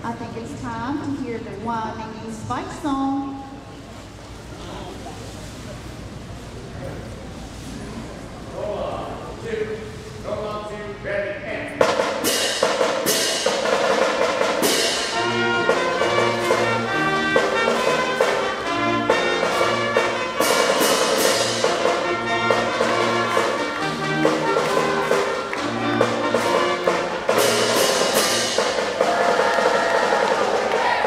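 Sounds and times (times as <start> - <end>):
school band playing fight song: 11.6 - 31.0.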